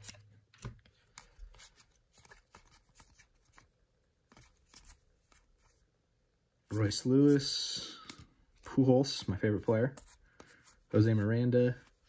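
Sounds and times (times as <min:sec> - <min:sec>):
trading cards being flipped: 0:00.0 - 0:03.7, 0:04.3 - 0:05.8.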